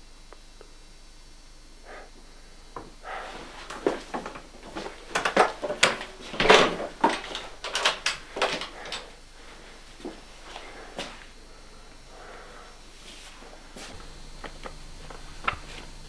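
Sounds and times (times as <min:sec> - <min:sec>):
sharp knocks clicks and rattles: 0:03.7 - 0:09.2.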